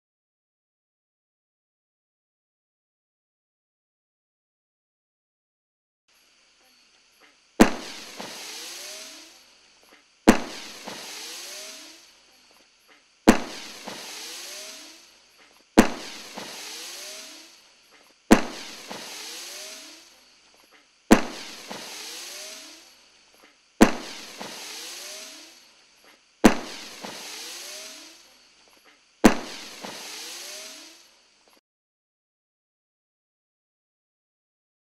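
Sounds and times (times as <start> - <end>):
firework hissing and whistles: 6.1 - 31.6
firework bangs: 7.6 - 28.6, 29.2 - 31.3.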